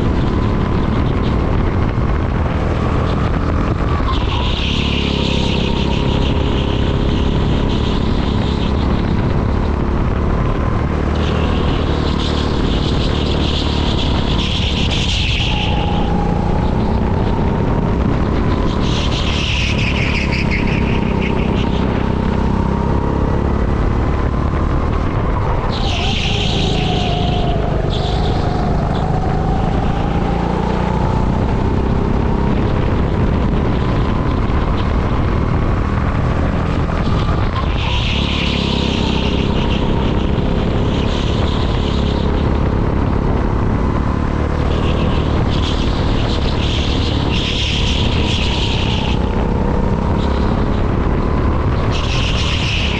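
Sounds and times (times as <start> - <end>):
go-kart engine running hard: 0.0 - 52.9
tyre squeal: 25.2 - 32.4.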